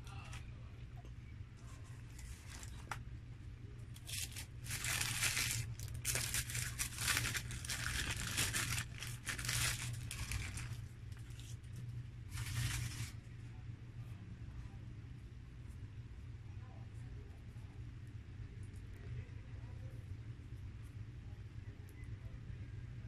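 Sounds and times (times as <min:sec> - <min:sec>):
paper wrapper crinkling and tearing: 0:02.0 - 0:03.0, 0:03.9 - 0:13.2.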